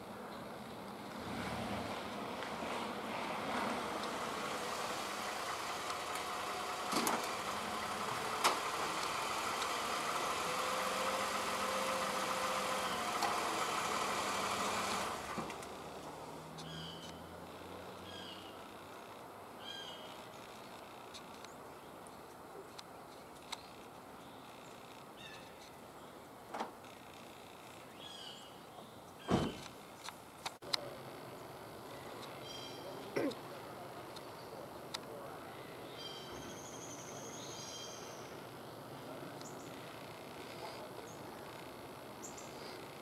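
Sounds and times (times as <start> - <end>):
outdoor background noise: 0.0 - 43.0
bird chirp: 16.6 - 17.3, 18.0 - 18.7, 19.6 - 20.8, 23.5 - 26.2, 27.8 - 29.5, 31.3 - 33.1, 35.5 - 38.8, 42.2 - 42.8.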